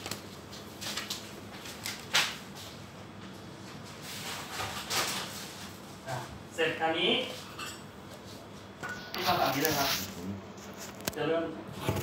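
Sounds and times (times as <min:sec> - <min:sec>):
plastic bags rustling: 0:00.0 - 0:02.4, 0:09.1 - 0:11.2.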